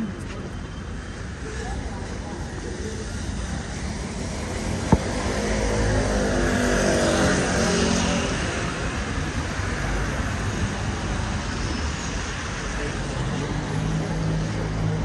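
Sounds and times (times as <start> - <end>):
traffic hum: 0.0 - 15.0
vehicle passing on wet street: 3.1 - 11.5.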